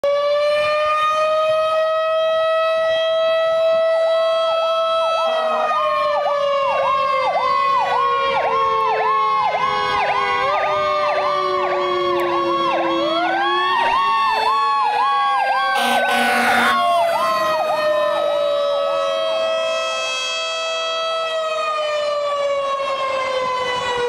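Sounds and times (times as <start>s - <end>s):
fire engine siren yelping: 0.0s - 24.0s
fire station siren steady tone: 0.0s - 24.0s.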